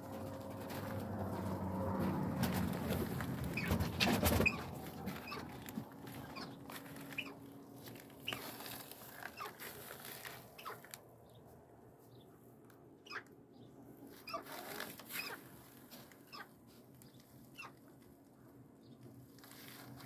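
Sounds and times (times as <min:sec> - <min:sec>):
rustling: 0:00.1 - 0:11.0, 0:14.1 - 0:18.1, 0:19.1 - 0:20.0
birds clucking and chirping: 0:00.1 - 0:11.5, 0:13.0 - 0:17.8.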